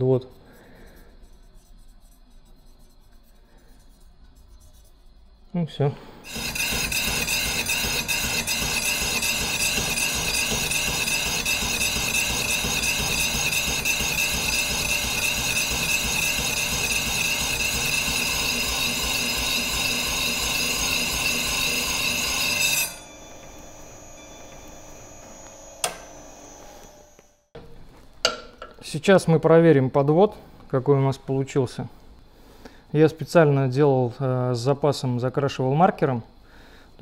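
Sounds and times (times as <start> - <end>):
high-pitched grinding whine: 6.2 - 27.5
machine hum: 6.2 - 28.1.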